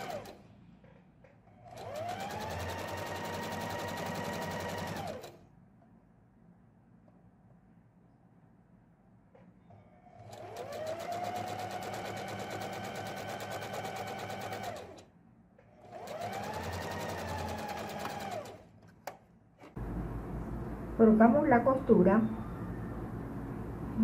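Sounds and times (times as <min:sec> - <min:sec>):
sewing machine motor whine: 0:00.0 - 0:00.4, 0:01.6 - 0:05.4, 0:10.1 - 0:15.0, 0:15.8 - 0:18.6.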